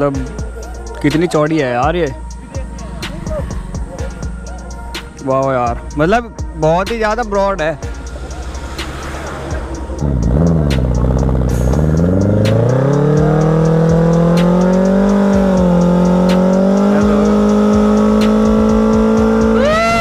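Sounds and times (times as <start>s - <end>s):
motorcycle engine revving: 7.8s - 20.0s
rising and falling tone: 8.0s - 20.0s.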